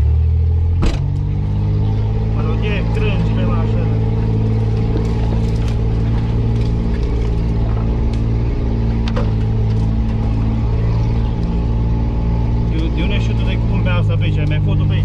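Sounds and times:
engine running at low revs: 0.0 - 15.0
branches scraping against vehicle: 1.9 - 11.8.

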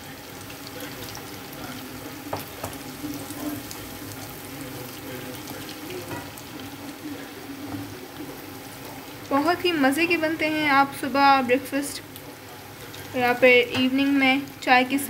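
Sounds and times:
food sizzling in oil: 0.0 - 15.0
spatula tapping a pan: 2.3 - 2.8, 6.0 - 6.4.

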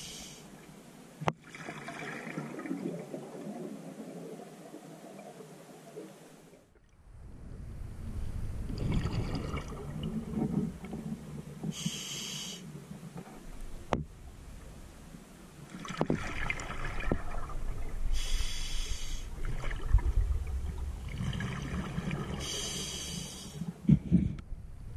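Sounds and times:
regulator inhale hiss: 0.0 - 0.6, 11.7 - 12.7, 18.1 - 19.4, 22.4 - 23.7
exhaled bubbles gurgling: 1.4 - 5.2, 8.6 - 11.3, 15.7 - 18.3, 19.3 - 23.5.

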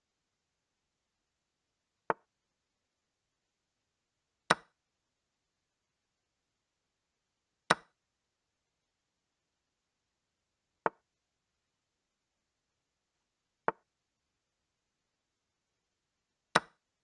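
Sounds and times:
digital chess move clicks: 4.5 - 4.7, 7.7 - 7.9, 16.6 - 16.8.

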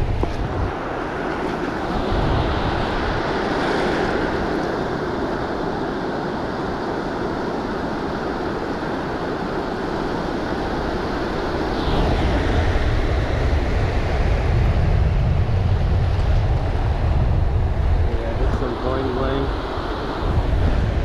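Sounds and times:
shallow surf washing: 0.0 - 21.0
wind on microphone: 0.0 - 21.0
heavy low rumble: 11.7 - 19.6, 20.2 - 21.0.

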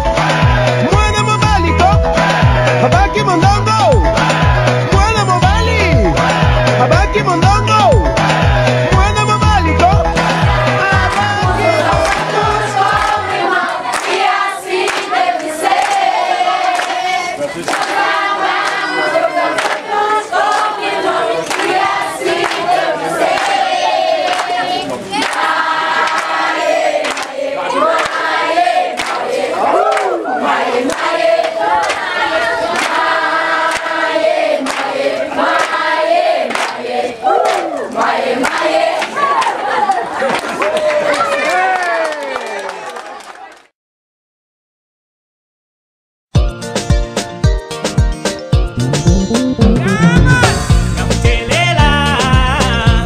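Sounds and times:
sharp beats: 0.9 - 12.6, 48.7 - 51.2
women and children singing: 10.5 - 40.0
hand claps: 12.0 - 13.2, 13.9 - 14.2, 14.8 - 16.0, 17.6 - 18.0, 19.6 - 19.8, 27.0 - 27.3, 29.0 - 29.2, 34.6 - 34.9, 36.5 - 36.8.

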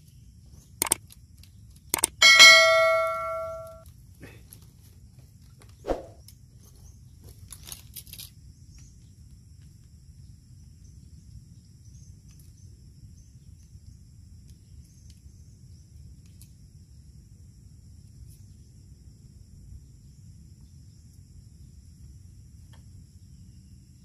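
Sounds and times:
insects chirring: 5.7 - 24.0.

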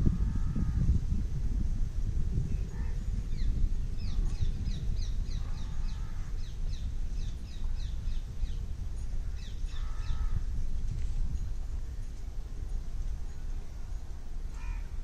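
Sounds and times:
steady low rumble: 0.0 - 15.0
lower bird calls: 2.5 - 10.5, 13.3 - 15.0
birds chirping high: 2.6 - 10.5.

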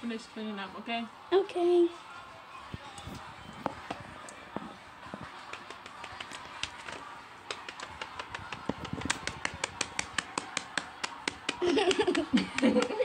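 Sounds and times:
toys knocking on paper: 5.7 - 13.0.

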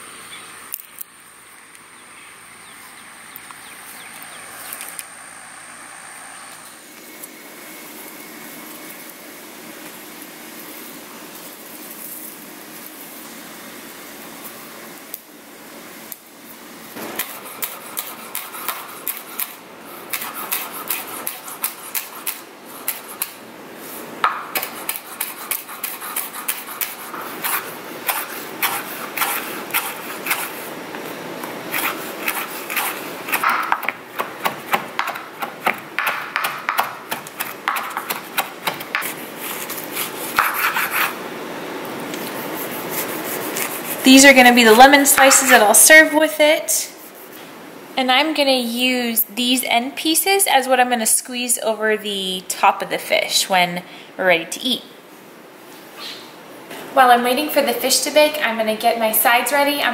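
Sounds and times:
knife chopping on cutting board: 31.7 - 41.1.

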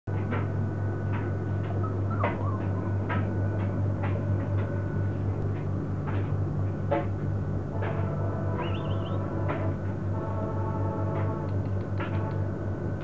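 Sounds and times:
low electrical hum: 0.1 - 13.0
puppies squeaking and yipping: 1.8 - 3.0, 8.6 - 9.2.

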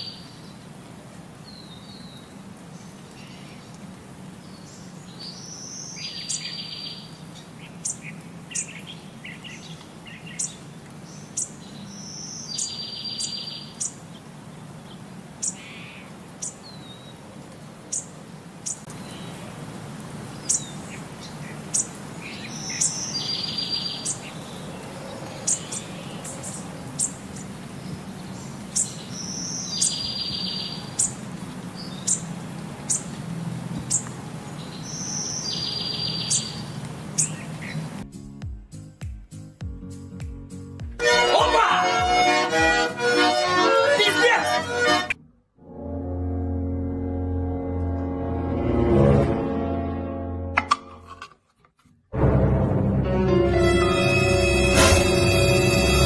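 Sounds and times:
birds chirping: 0.0 - 0.8, 1.4 - 38.0, 41.0 - 45.2.

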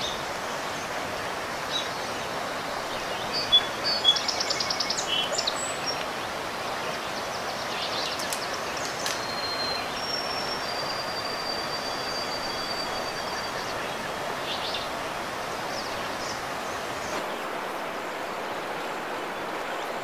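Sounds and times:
birds calling: 0.0 - 17.3
high whistled bird notes: 9.0 - 13.7.

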